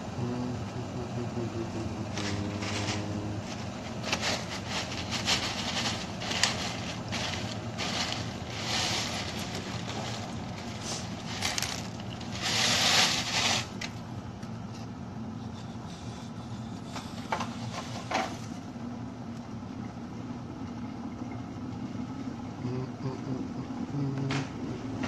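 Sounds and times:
low steady hum: 0.0s - 25.0s
plastic packaging crinkling: 2.2s - 14.0s.

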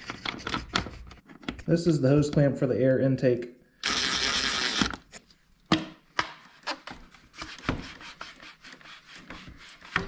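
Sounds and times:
cordless driver spinning: 3.8s - 5.0s.

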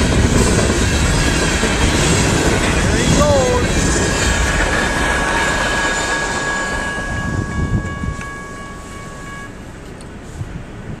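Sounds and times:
freight train rumbling: 0.0s - 11.0s
high ringing tone: 4.1s - 9.8s.

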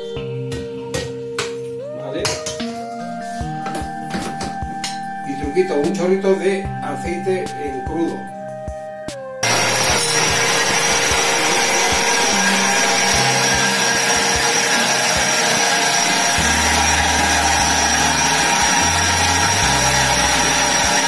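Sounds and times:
blender motor whirring: 9.4s - 21.0s.

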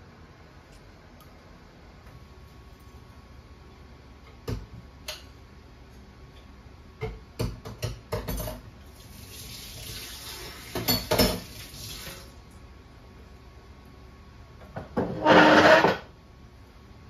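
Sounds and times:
dishes clinking in sink: 7.0s - 8.7s, 10.6s - 11.6s.

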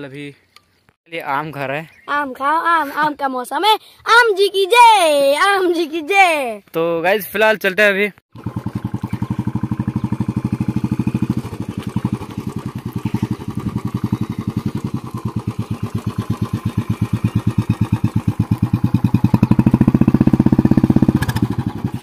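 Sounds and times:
motorcycle engine thumping: 8.3s - 22.0s.

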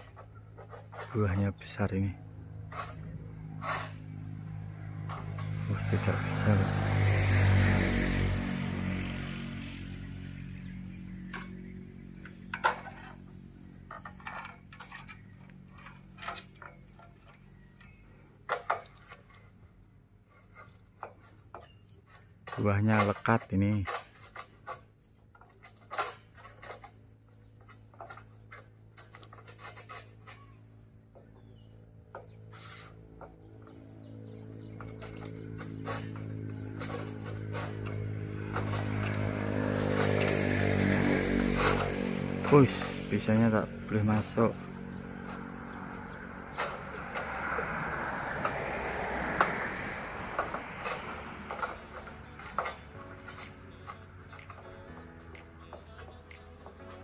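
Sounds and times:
harvesting sickle scraping and knocking: 0.0s - 57.0s
steady engine hum: 0.0s - 57.0s.

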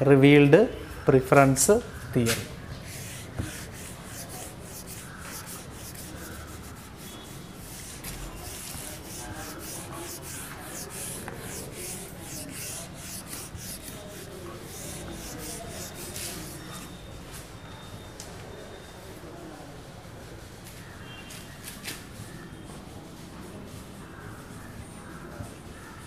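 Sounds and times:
eraser rubbing on whiteboard: 2.3s - 17.0s.

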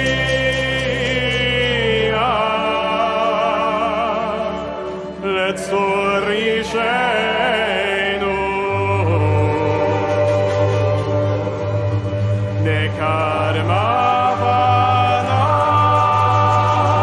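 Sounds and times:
congregation singing: 0.0s - 17.0s.

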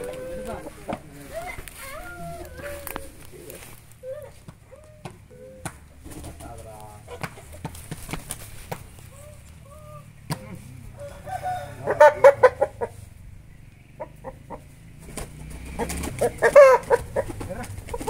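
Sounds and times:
rooster calling: 0.0s - 5.6s, 9.1s - 13.2s, 15.6s - 17.6s.

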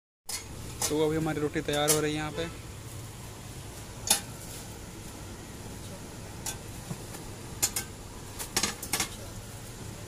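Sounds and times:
steady low hum: 0.3s - 10.0s
metal tongs clinking against a pan: 6.4s - 6.6s.

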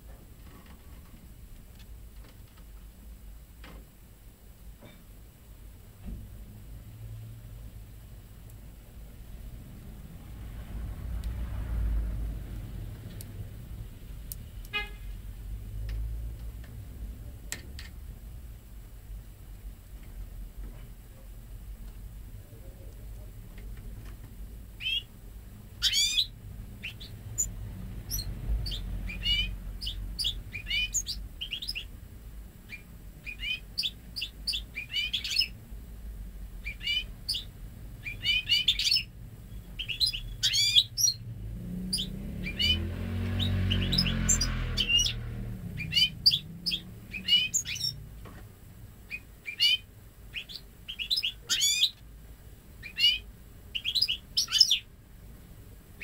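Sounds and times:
bird chirping and twittering: 24.8s - 25.1s, 25.7s - 32.0s, 32.6s - 35.6s, 36.6s - 48.1s, 49.1s - 52.0s, 52.8s - 54.9s.

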